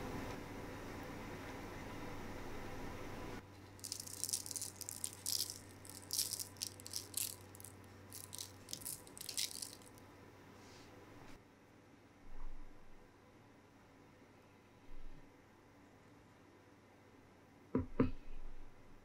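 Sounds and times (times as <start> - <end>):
sugar pattering on dough: 3.7 - 10.0.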